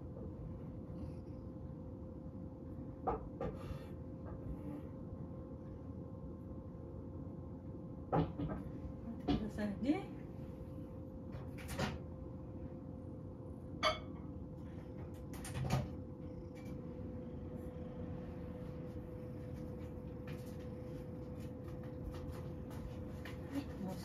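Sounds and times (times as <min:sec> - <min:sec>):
steady low hum: 0:00.0 - 0:24.0
kitchen knocks and clatters: 0:08.1 - 0:09.6.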